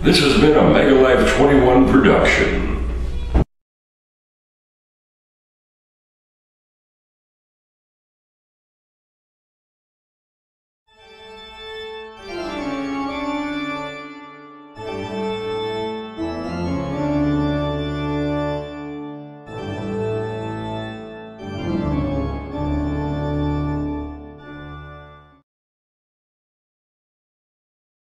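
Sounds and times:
organ playing slow chords: 10.9 - 25.4.

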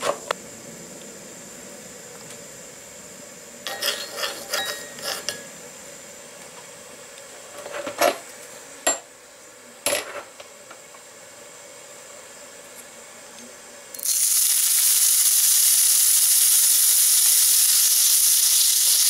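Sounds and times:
skillet scraping on stove top: 3.6 - 5.6, 7.5 - 8.2.

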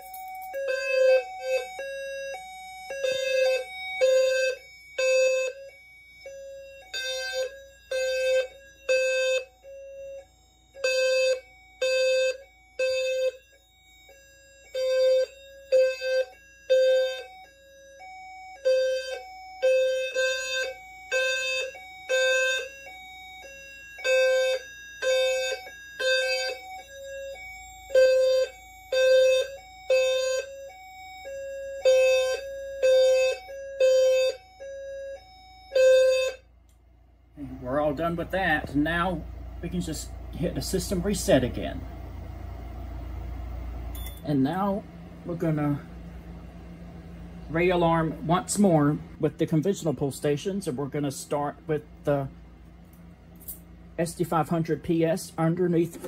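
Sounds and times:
fire alarm horn pulses: 0.0 - 41.8.

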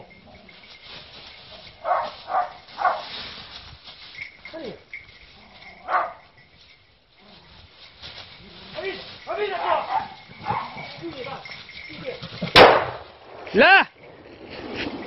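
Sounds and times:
dog barking: 1.8 - 3.1, 5.8 - 6.3, 9.6 - 10.9.

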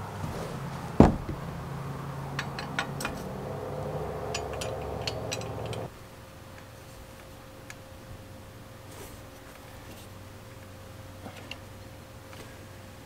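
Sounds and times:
steady low hum: 0.0 - 6.3
metallic clicks of bicycle parts: 4.3 - 5.9.

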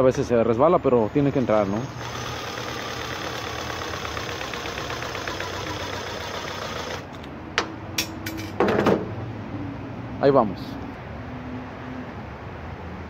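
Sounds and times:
cordless drill whirring: 1.0 - 7.2.

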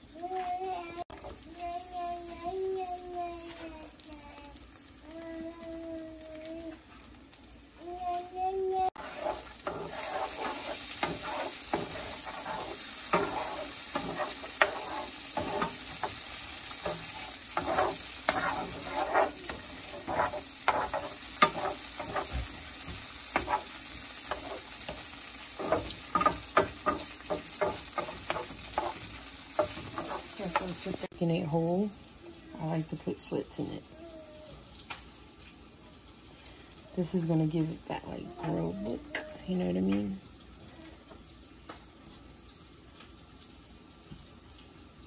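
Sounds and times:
vegetables sizzling in a frying pan: 0.0 - 34.0, 34.7 - 45.0
spatula scraping and knocking a pan: 9.0 - 31.1.

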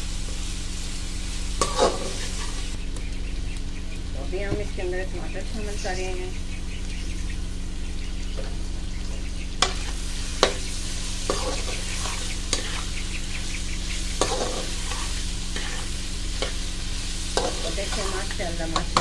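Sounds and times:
food sizzling in oil: 0.0 - 2.9, 6.9 - 19.0
metal spatula scraping a wok: 1.5 - 2.7, 9.6 - 19.0.

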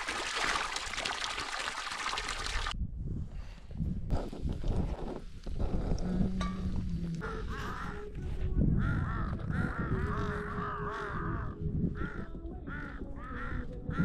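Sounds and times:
crows cawing: 7.2 - 8.1, 8.8 - 14.0.

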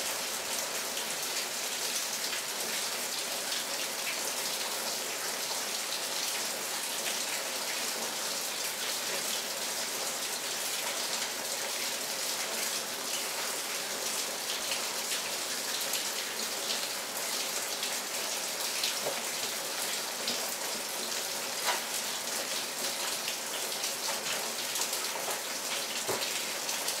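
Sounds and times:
steady rain falling: 0.0 - 27.0.

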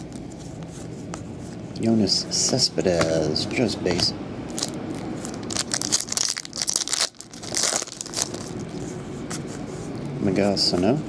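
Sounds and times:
foil wrapper crinkling and tearing: 4.5 - 8.8.

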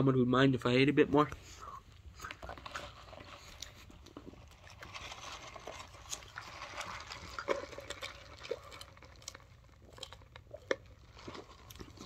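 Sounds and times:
slurping through a straw: 1.6 - 12.0.

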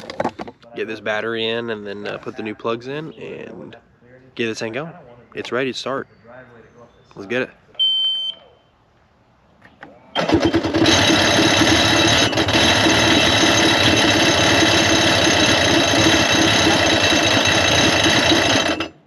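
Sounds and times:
engine cranking on electric starter: 10.2 - 19.0.

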